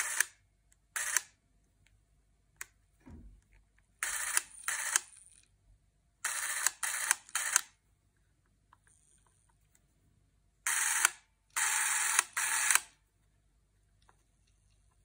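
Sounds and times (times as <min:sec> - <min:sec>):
cine camera motor whirring: 0:00.0 - 0:00.3, 0:01.0 - 0:01.3, 0:04.0 - 0:05.1, 0:06.2 - 0:07.6, 0:10.7 - 0:12.9.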